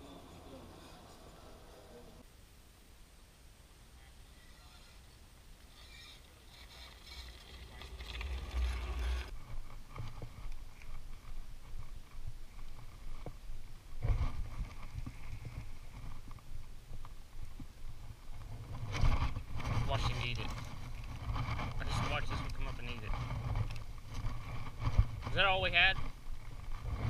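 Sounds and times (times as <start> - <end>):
utility vehicle engine: 5.7 - 9.3
tyres on gravel: 5.7 - 13.4
low rumble: 7.6 - 9.4.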